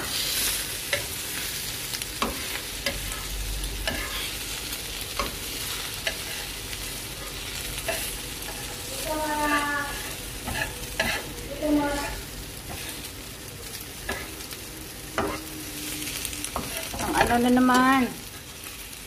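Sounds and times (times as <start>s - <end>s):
omelette sizzling in oil: 0.0s - 19.0s
metal spatula scraping pan: 2.2s - 4.4s, 7.2s - 13.1s.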